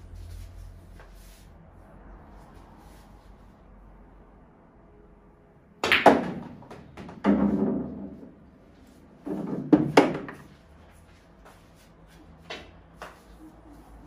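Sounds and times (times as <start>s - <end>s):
cue tip striking ball: 5.8s - 8.2s
pool balls clacking: 5.8s - 8.3s, 9.2s - 10.5s.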